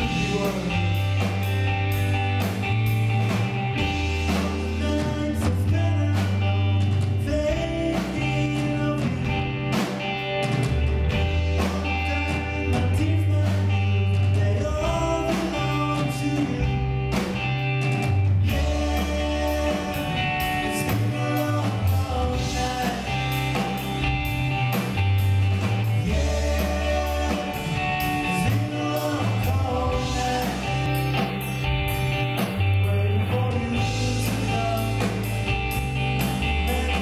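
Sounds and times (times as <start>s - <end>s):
person singing lead: 0.0s - 1.5s, 18.4s - 23.6s, 25.9s - 31.3s
live rock band: 0.0s - 37.0s.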